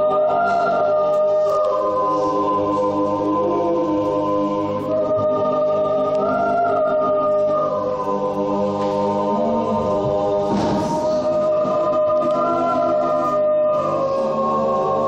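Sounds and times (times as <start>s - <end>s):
choir singing sustained chords: 0.0s - 15.0s.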